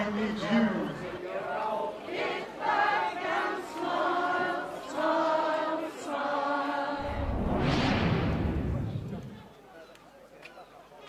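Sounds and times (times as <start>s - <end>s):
choir singing held notes: 1.4s - 8.8s.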